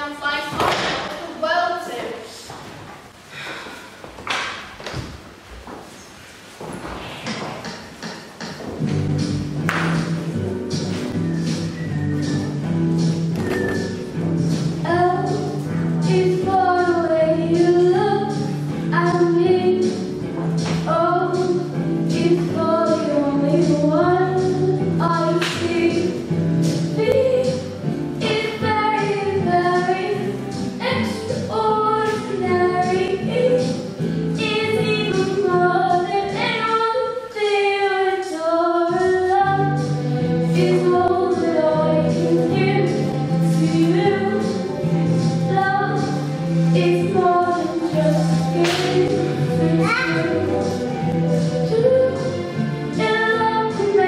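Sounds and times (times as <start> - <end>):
accompanying music: 7.2 - 54.0
girl singing into microphone: 14.8 - 20.1, 20.7 - 26.2, 27.0 - 33.8, 34.4 - 44.5, 45.4 - 50.7, 51.5 - 52.4, 53.0 - 54.0.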